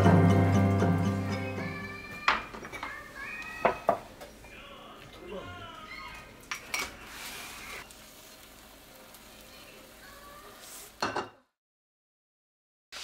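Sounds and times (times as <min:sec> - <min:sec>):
clay pot sizzling: 0:00.0 - 0:11.4
crockery clinking: 0:02.3 - 0:03.0.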